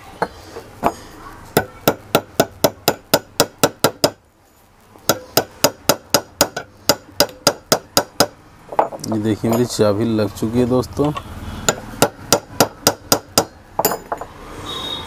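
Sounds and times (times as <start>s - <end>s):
hammer tapping metal: 1.6s - 4.2s, 5.1s - 9.6s, 11.7s - 14.3s.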